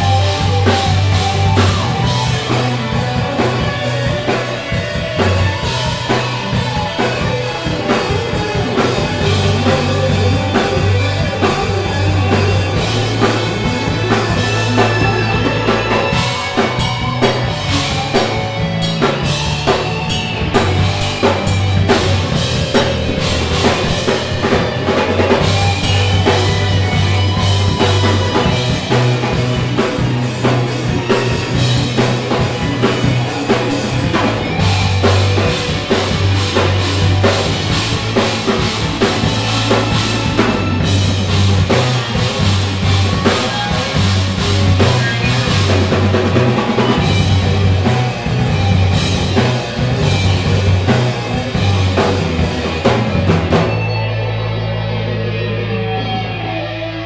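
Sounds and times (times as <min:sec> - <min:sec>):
live rock band playing: 0:00.0 - 0:57.0.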